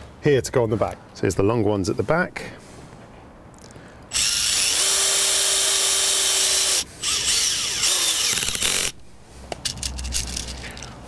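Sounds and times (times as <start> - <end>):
cordless drill driving screws: 4.1 - 9.0.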